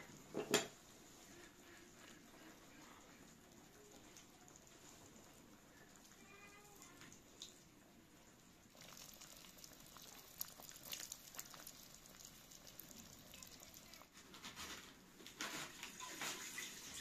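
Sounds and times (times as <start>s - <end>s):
milk pouring into a pot: 0.0s - 14.2s, 15.8s - 17.0s
stew simmering in a pot: 0.0s - 17.0s.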